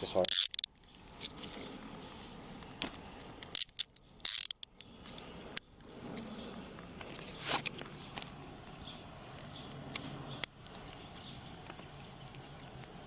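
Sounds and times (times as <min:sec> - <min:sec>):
handcuffs ratcheting clicks: 0:00.1 - 0:01.6, 0:03.3 - 0:05.7.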